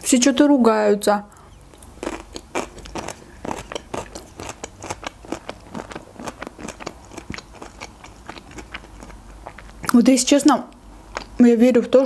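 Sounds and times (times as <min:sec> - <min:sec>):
chewing food: 0:01.4 - 0:10.0, 0:11.1 - 0:11.4.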